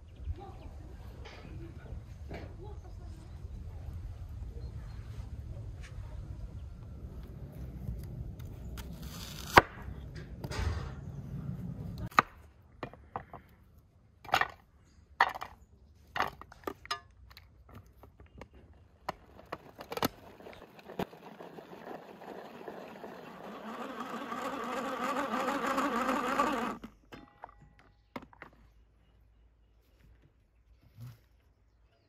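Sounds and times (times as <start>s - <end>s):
pull-cord food chopper whirring: 19.2s - 27.1s.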